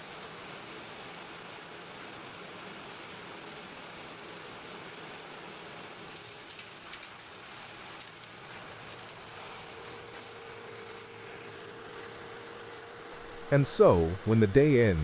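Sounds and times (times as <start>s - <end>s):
faint steady hum: 0.0s - 15.0s
suction pipe drawing sewage: 6.7s - 15.0s.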